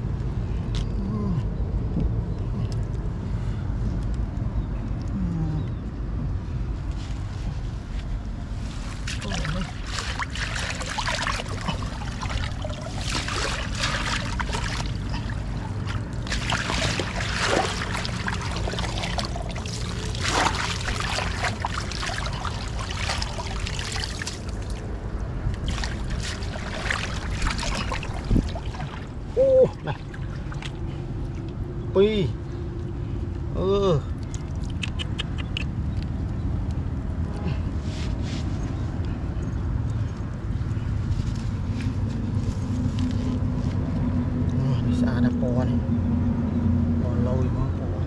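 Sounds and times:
water splashing and trickling: 7.0s - 34.9s.

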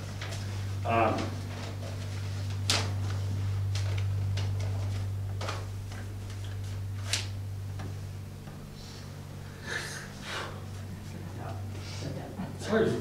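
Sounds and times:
low electrical hum: 0.0s - 13.0s
person sniffing: 9.6s - 10.6s.

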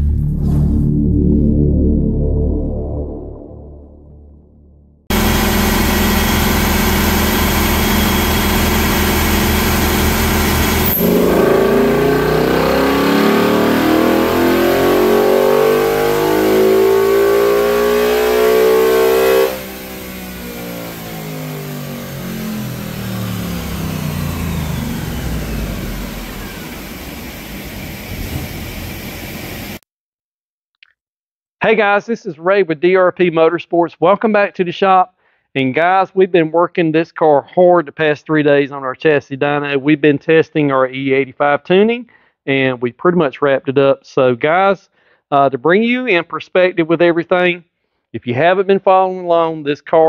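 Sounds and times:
car engine revving on a dyno: 5.1s - 29.8s.

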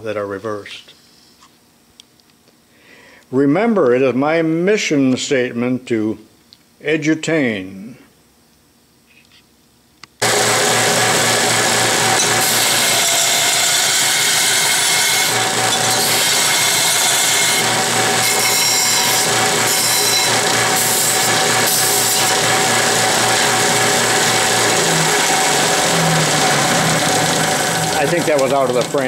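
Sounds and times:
belt sander running: 10.2s - 29.0s
metal grinding against sanding belt: 10.2s - 29.0s.

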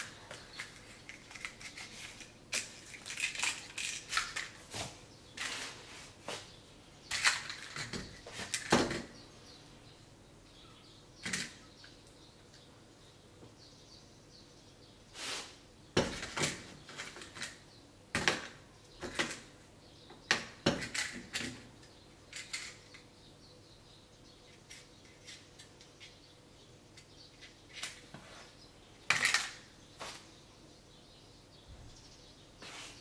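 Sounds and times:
matchbox handled: 0.3s - 4.6s.

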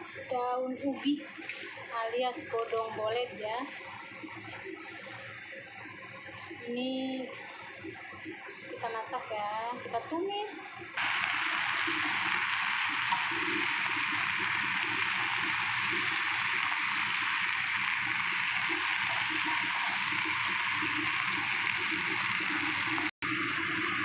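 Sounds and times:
leaves sizzling in hot oil: 11.0s - 24.0s.

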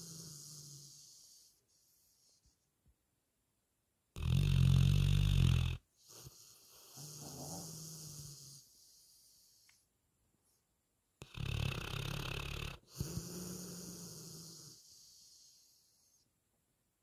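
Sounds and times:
dog snoring: 0.0s - 2.4s, 4.2s - 9.7s, 11.2s - 16.2s
quiet breath with faint hum: 0.0s - 3.0s, 4.2s - 17.0s.

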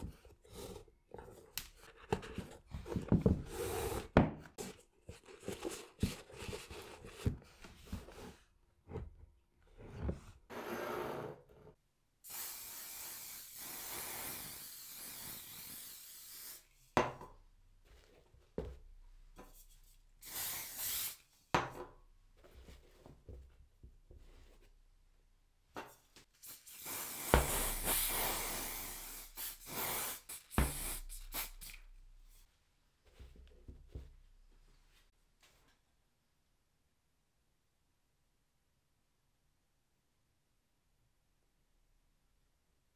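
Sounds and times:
long steady hisses: 12.2s - 16.8s, 20.2s - 21.3s, 26.4s - 32.5s.

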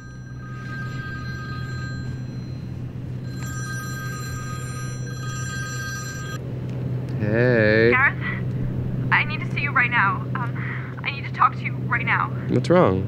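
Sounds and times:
phone ringing: 0.0s - 6.4s
low hum: 0.0s - 12.4s.

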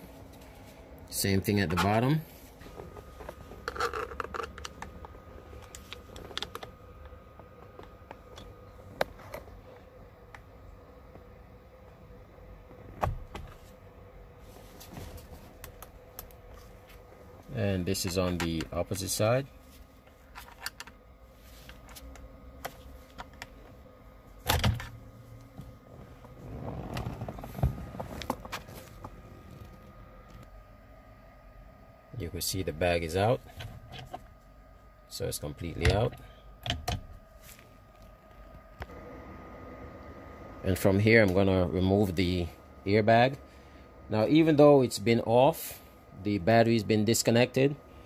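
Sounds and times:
rustling handling noise: 25.4s - 30.5s.

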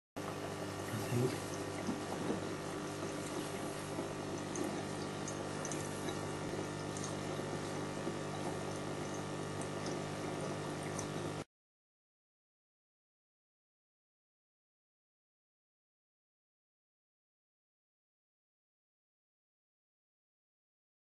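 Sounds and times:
electric pump humming: 0.2s - 11.5s
water bubbling: 0.4s - 11.4s.

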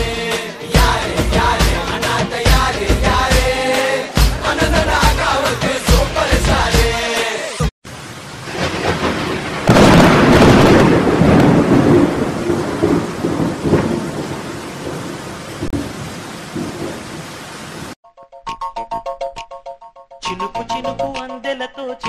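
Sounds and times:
heavy rain: 3.4s - 18.0s
thunder peal: 8.4s - 17.1s.

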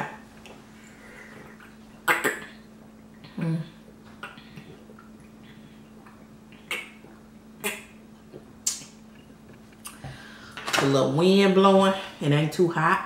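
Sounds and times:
faint low hum: 0.0s - 13.0s
person gulping water: 1.5s - 9.0s.

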